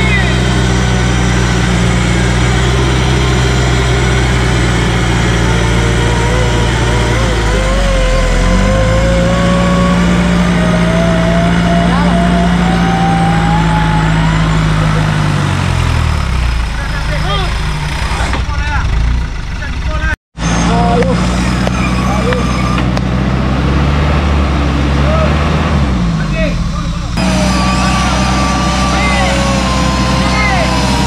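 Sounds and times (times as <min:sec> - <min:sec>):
thin rising whine: 0:00.0 - 0:15.1, 0:27.1 - 0:31.0
off-road vehicle engine under load: 0:00.0 - 0:31.0.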